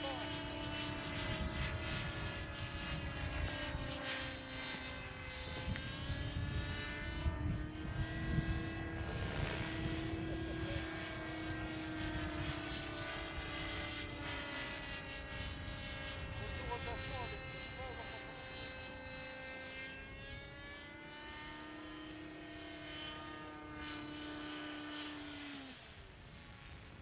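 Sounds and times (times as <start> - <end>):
model helicopter engine whine: 0.0 - 27.0.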